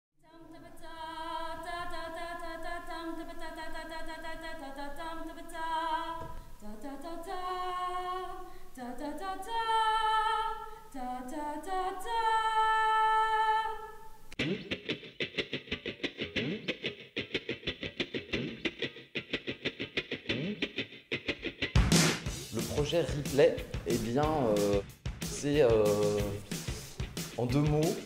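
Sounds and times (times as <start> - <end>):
voices singing a cappella: 0.3 - 14.3, 23.9 - 26.9
music with quick regular beat: 20.0 - 28.0.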